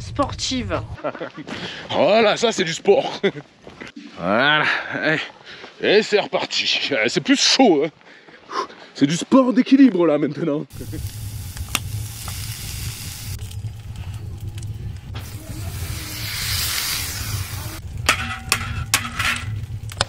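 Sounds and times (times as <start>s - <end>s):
potatoes and onions sizzling in pan: 10.7s - 13.6s, 15.2s - 20.0s.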